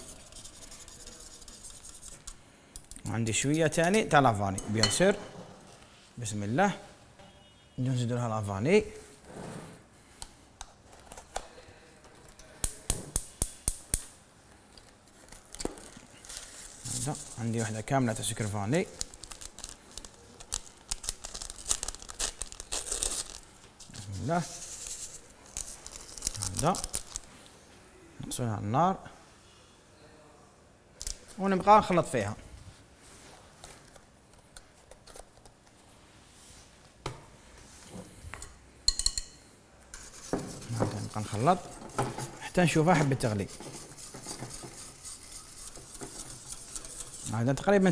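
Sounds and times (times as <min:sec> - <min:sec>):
metal whisk clinking on glass bowl: 0:03.8 - 0:05.1, 0:38.9 - 0:39.4
metal utensil clinking on saucepan: 0:38.9 - 0:39.4.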